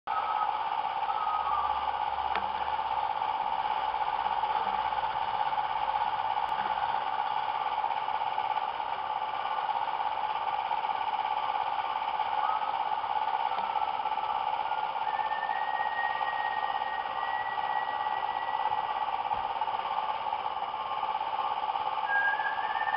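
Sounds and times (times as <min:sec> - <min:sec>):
constant mid-pitched tone: 0:00.1 - 0:22.9
mechanical whirring hum: 0:00.1 - 0:22.9.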